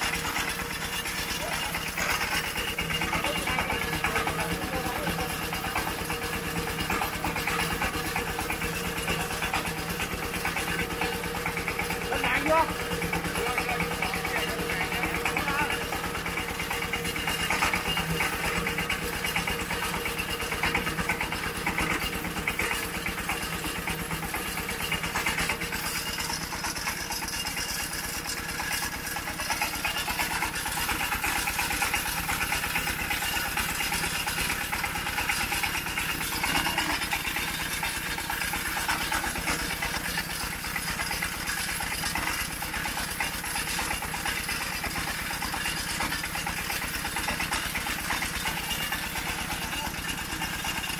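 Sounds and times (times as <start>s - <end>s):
small engine idling: 0.0s - 50.9s.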